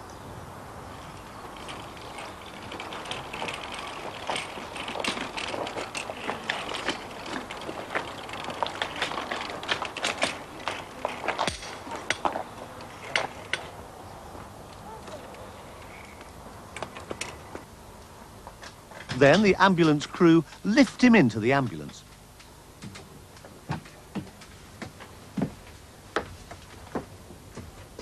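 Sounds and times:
metal trolley rattling on pavement: 1.1 - 13.8, 18.9 - 20.5.

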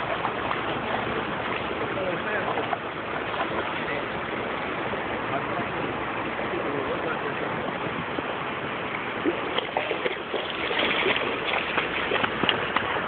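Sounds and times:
river water rushing over rocks: 0.0 - 13.0
short knocks and splashes: 8.9 - 13.0.

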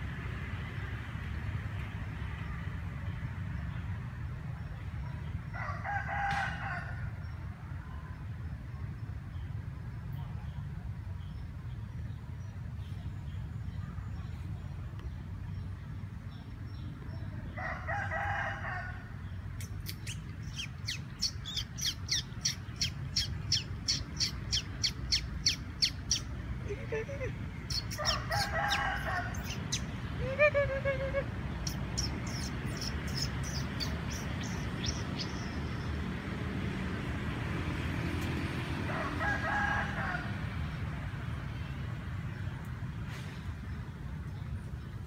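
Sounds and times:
rooster crowing: 5.6 - 7.2, 17.6 - 19.1, 27.9 - 29.6, 38.9 - 40.4
bird chirping: 19.6 - 36.0
pitched bird call: 26.9 - 35.6.

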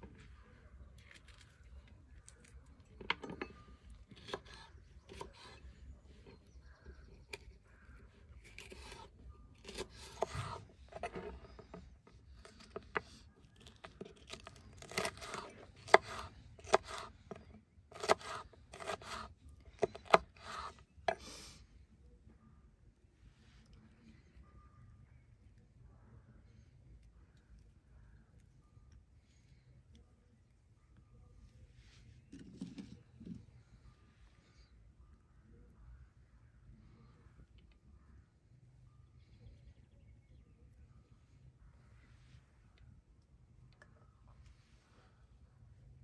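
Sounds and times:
knife slicing pepper: 8.5 - 11.3, 13.6 - 21.3.

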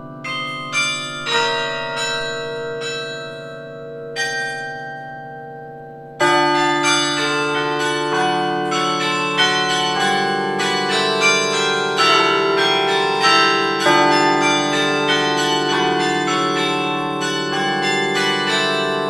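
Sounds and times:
carillon bells melody: 0.0 - 19.0.

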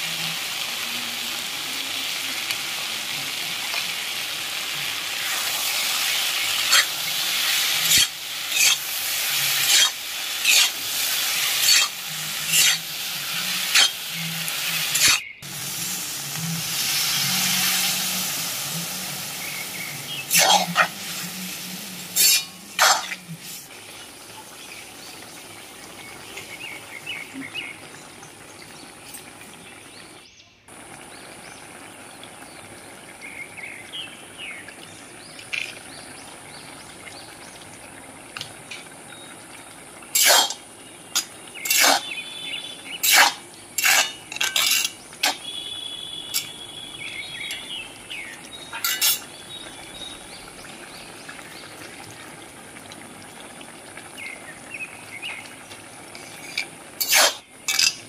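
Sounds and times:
curry bubbling in a wok: 0.0 - 58.0
utensil clinking on pan: 43.8 - 45.4, 48.8 - 49.3.

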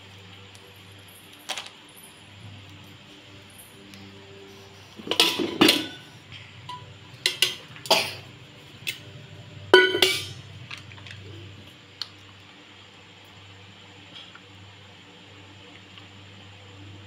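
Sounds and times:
metal utensils clinking: 5.0 - 8.2, 9.7 - 11.2
ringing metal clang: 9.8 - 10.4.

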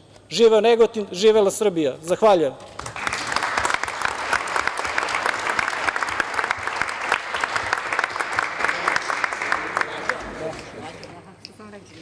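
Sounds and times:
crowd applauding: 2.8 - 10.8.

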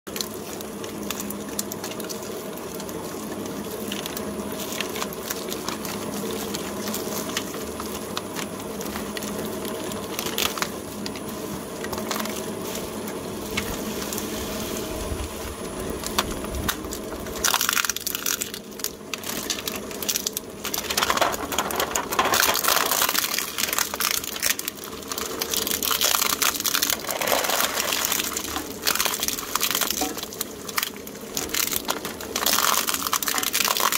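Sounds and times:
plastic capsules crackling crushed: 19.2 - 33.9.

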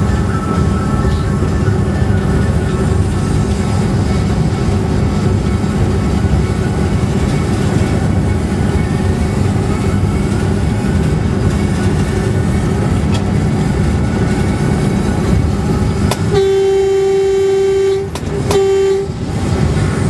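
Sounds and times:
train rumbling on rails: 0.0 - 20.0
locomotive horn blast: 16.1 - 19.5.

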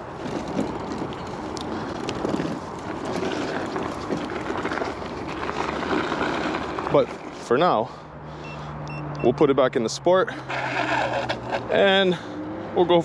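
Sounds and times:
scooter tyres rolling on gravel: 0.0 - 8.0, 10.3 - 12.2.

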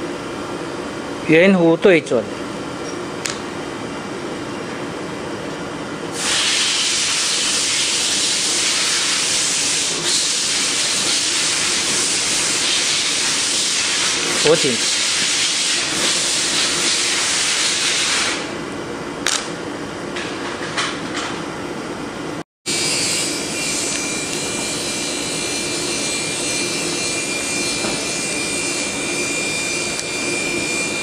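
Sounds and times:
workshop hiss: 6.1 - 18.6.

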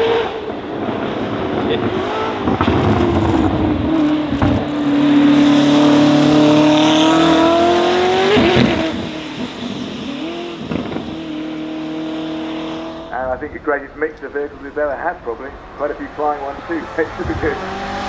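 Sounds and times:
car engine accelerating hard: 0.0 - 13.8, 14.7 - 18.0.

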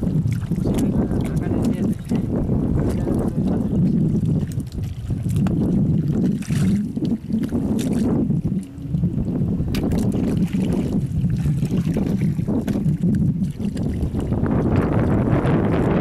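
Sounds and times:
wind buffeting microphone: 0.0 - 16.0
wet clicks of hands in mud: 9.7 - 10.0.

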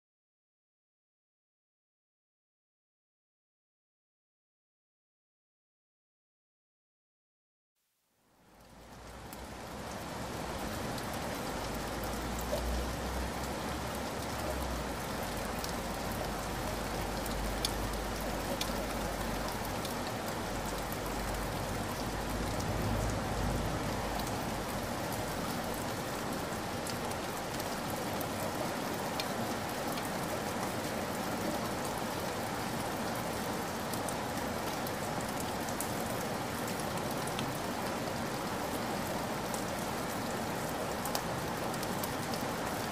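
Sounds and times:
stream babbling over gravel: 9.2 - 42.9.

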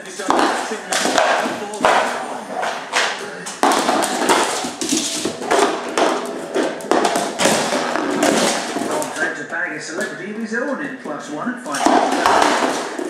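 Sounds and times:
plastic container scraping on floor: 2.6 - 9.4.

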